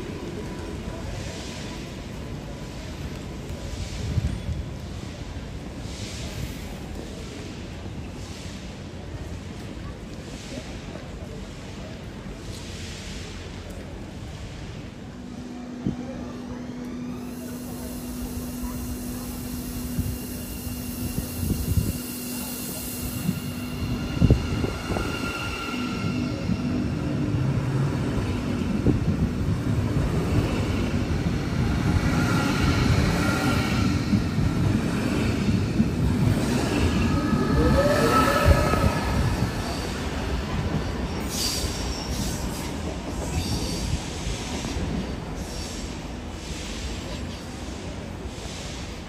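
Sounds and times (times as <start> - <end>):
train rumbling: 0.0 - 49.0
wheels squealing on rails: 16.4 - 49.0.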